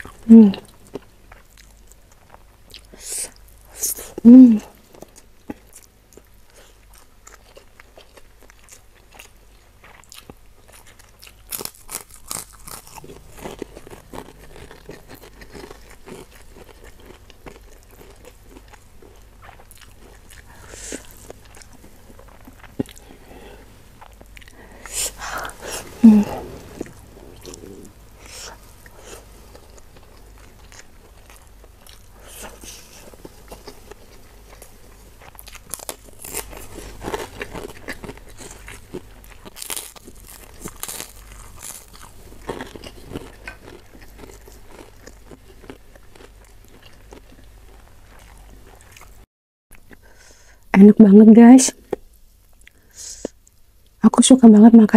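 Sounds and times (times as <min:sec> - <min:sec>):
crunching crackers: 0:04.8 - 0:23.3, 0:26.7 - 0:49.2
wet chewing and mouth smacks: 0:04.9 - 0:23.2.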